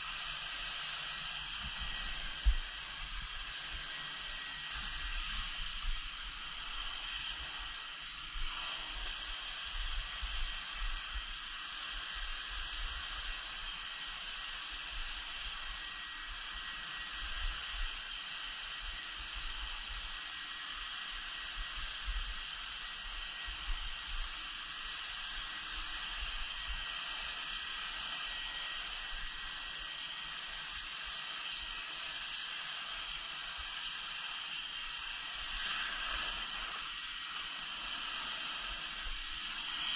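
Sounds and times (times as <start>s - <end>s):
spray gun hissing: 34.4s - 39.9s.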